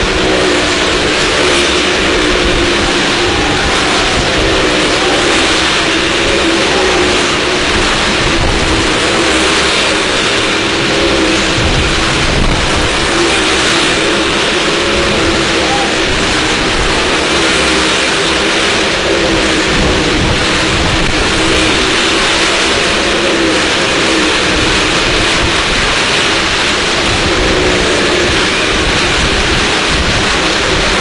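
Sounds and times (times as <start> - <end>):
car and motorcycle engines roaring: 0.0 - 31.0.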